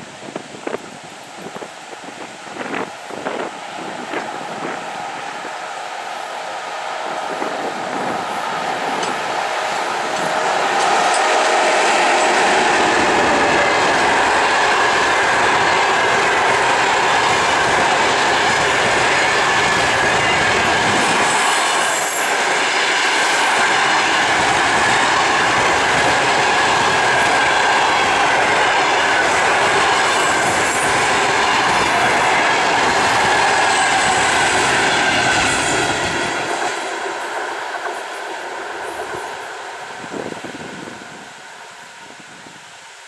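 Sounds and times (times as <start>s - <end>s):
train wheels clattering on rails: 7.3s - 41.0s.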